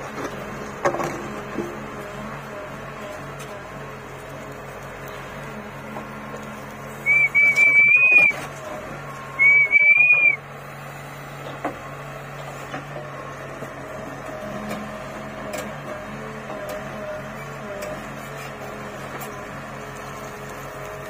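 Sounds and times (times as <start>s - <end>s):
diesel engine hum: 0.0s - 21.0s
high whistles: 7.0s - 8.4s, 9.4s - 10.4s.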